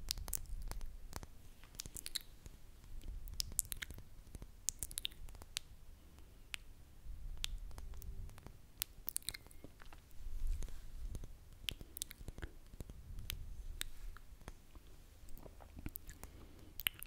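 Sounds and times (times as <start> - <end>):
lip smacks and tongue clicks: 0.0 - 6.7, 7.4 - 17.0
low rumble on microphone: 12.8 - 15.9.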